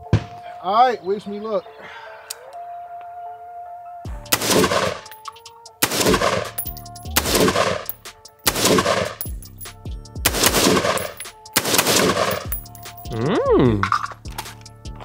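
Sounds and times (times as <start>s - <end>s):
gunshots with ringing echo: 4.3s - 5.2s, 5.8s - 9.5s, 10.3s - 13.1s.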